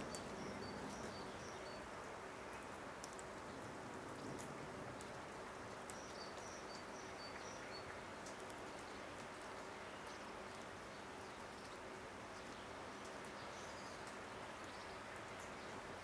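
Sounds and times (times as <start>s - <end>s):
open-air background hiss: 0.0s - 16.0s
faint ticks: 2.5s - 3.5s.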